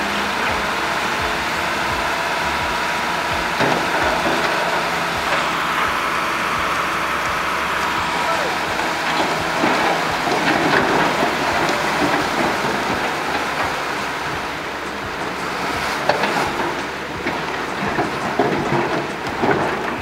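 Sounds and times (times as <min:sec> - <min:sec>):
dump truck running: 0:00.0 - 0:20.0
falling debris knocks: 0:00.0 - 0:20.0.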